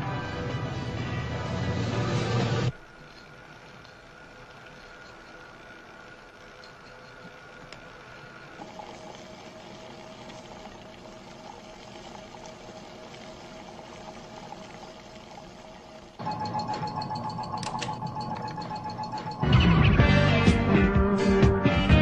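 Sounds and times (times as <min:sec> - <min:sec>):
electrical hum: 0:00.0 - 0:21.7.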